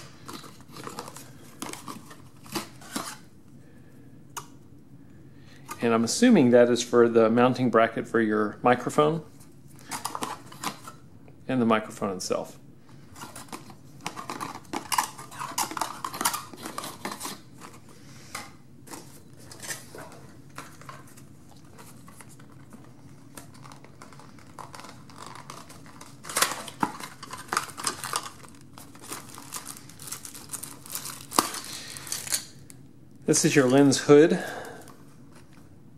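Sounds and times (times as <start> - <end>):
cardboard and plastic rustling: 0.0 - 3.3, 13.0 - 32.5.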